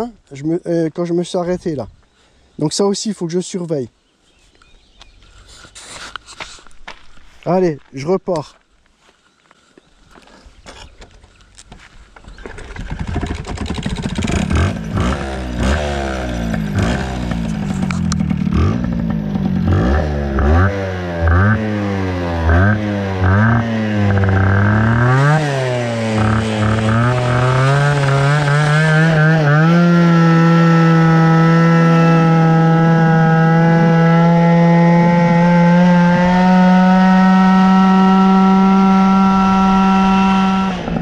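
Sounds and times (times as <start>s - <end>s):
moped two-stroke engine revving: 12.4s - 41.0s.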